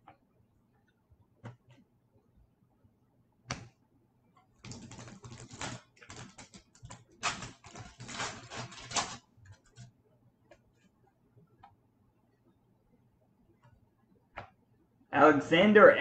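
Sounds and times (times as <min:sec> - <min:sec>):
foil wrapper crinkling torn open: 0:07.2 - 0:09.2.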